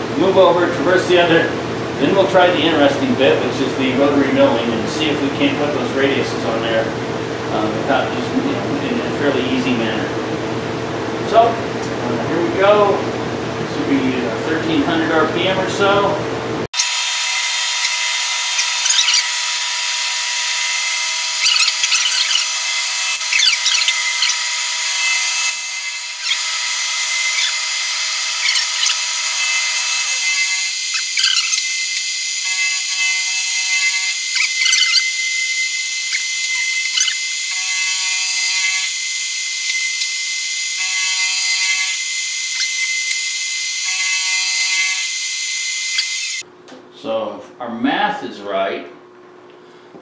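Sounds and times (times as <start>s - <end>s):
milling machine whining and cutting: 16.8s - 46.4s.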